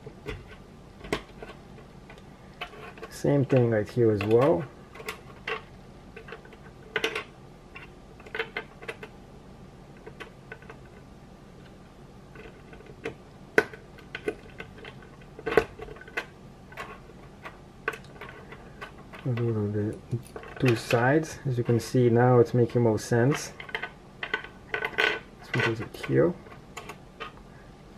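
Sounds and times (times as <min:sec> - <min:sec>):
plastic parts clicking together: 0:00.0 - 0:09.1, 0:11.6 - 0:21.1.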